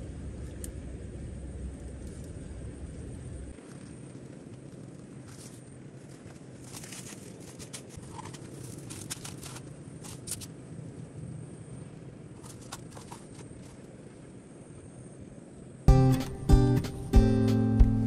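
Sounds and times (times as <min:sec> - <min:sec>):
low outdoor rumble: 0:00.0 - 0:18.0
dry twigs snapping: 0:06.1 - 0:10.5.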